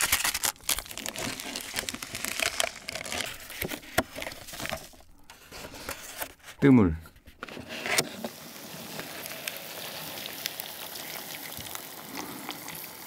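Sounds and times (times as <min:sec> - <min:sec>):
plastic sachets crinkling: 0:00.0 - 0:05.4.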